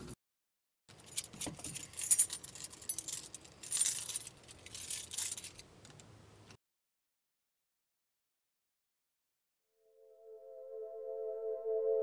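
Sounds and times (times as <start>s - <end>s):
keys jangling: 0.9s - 5.7s.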